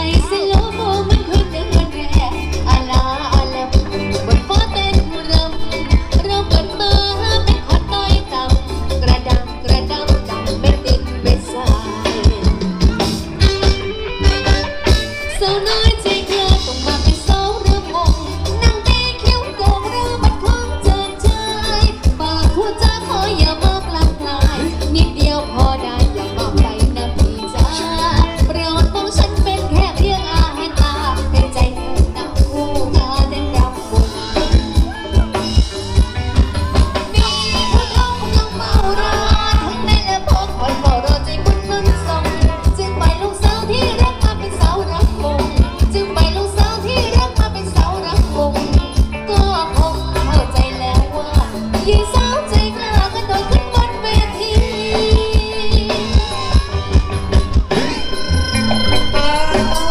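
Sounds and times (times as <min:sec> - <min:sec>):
dance band playing: 0:00.0 - 0:59.9
person singing: 0:00.0 - 0:59.9.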